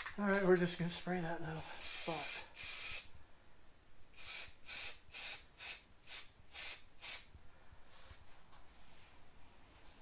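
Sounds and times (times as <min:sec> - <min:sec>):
spray-paint can hissing: 0:01.6 - 0:03.1, 0:04.2 - 0:07.3.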